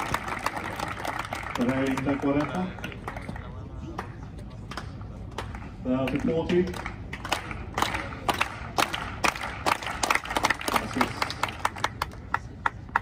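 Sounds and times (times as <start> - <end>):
crowd applause: 0.0 - 3.6, 6.8 - 13.0.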